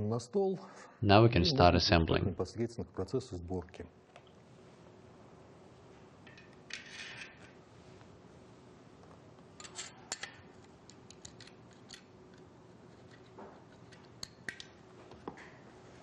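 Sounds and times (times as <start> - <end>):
metal parts clicking and tapping: 9.6 - 14.7.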